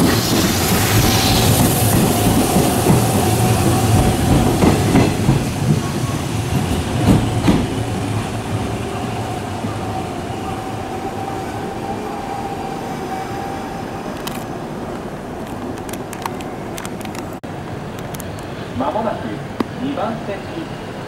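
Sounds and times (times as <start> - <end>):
train wheels clacking over rail joints: 1.9 - 7.9.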